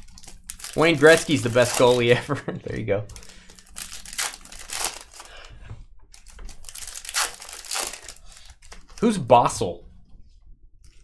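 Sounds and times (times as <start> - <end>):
foil wrappers crinkling and tearing: 0.0 - 2.2, 3.1 - 5.5, 6.1 - 9.3.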